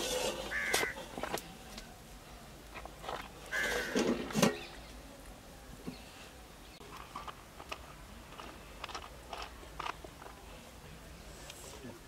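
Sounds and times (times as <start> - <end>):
crow cawing: 0.5 - 1.0, 3.5 - 4.0.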